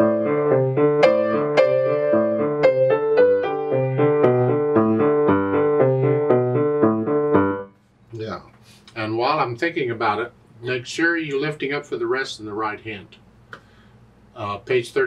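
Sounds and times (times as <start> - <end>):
grand piano played loudly: 0.0 - 7.8.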